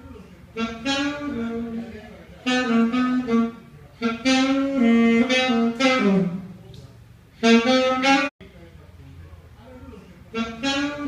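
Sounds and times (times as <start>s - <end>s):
solo saxophone playing: 0.5s - 8.3s, 10.3s - 11.0s.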